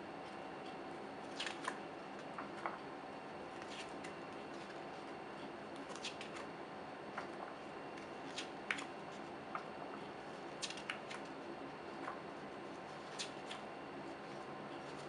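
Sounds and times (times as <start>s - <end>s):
pages being turned: 1.3s - 2.4s, 3.5s - 4.9s.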